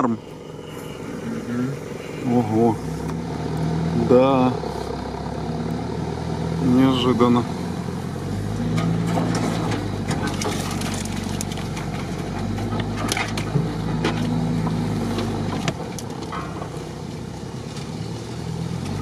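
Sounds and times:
suv engine running: 0:00.0 - 0:19.0
vehicle knocks and rattles: 0:08.6 - 0:19.0.

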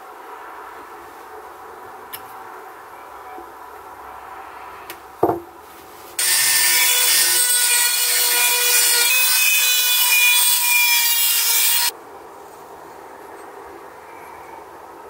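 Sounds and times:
brief knock: 0:05.2 - 0:05.4
rotary tool grinding steel: 0:06.2 - 0:11.9.

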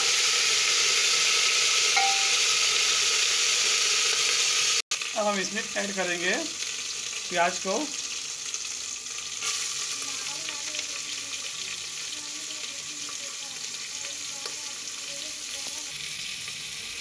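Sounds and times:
onions sizzling in hot oil: 0:00.0 - 0:17.0.

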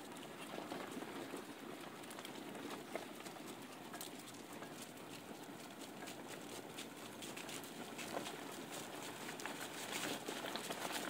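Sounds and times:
patter of dog paws: 0:00.0 - 0:11.0.

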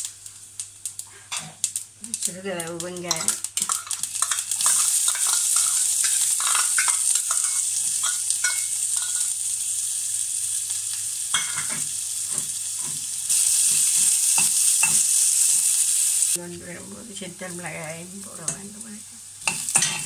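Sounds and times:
onion sizzling in hot oil: 0:00.0 - 0:20.0
metal spoon scraping a pot: 0:03.1 - 0:09.3.

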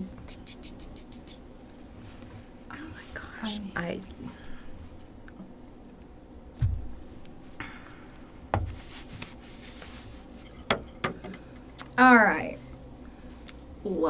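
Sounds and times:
dull thumps: 0:06.6 - 0:07.1, 0:08.5 - 0:09.1
hair rustling: 0:08.6 - 0:10.9.

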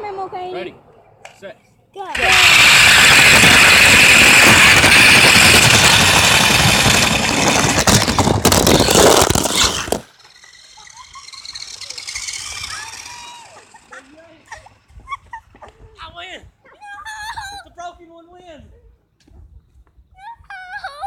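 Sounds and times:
remote control car running: 0:02.1 - 0:15.7
high motor whine: 0:02.2 - 0:15.3.

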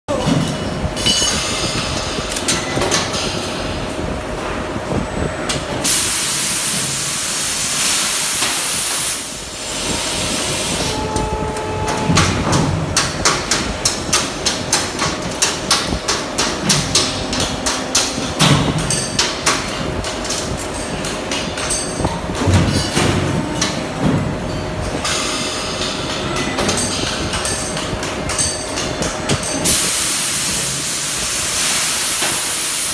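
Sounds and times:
machinery noise: 0:00.1 - 0:32.9
loud hiss: 0:05.8 - 0:11.0, 0:29.6 - 0:32.9
sharp clicks and knocks: 0:11.2 - 0:24.3.

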